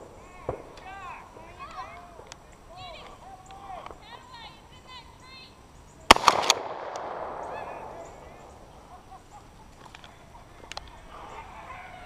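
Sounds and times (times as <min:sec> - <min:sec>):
shotgun blast: 0:06.1 - 0:08.1.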